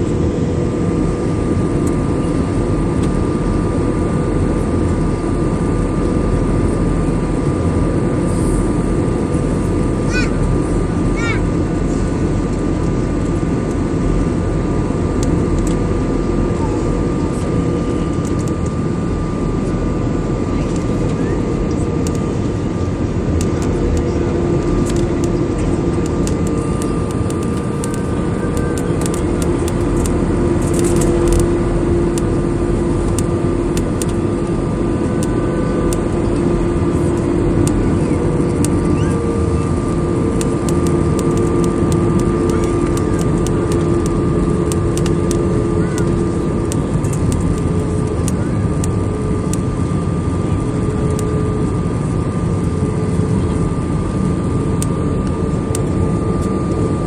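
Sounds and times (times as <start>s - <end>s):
jet cabin engine roar: 0.0s - 57.0s
steady hums: 0.0s - 57.0s.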